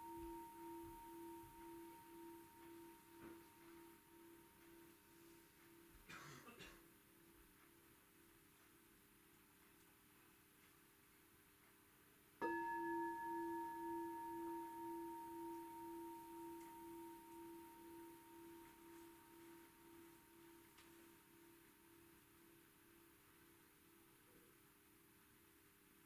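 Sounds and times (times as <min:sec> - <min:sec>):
meditation bowl bell ringing: 0:00.0 - 0:06.0, 0:12.4 - 0:22.4.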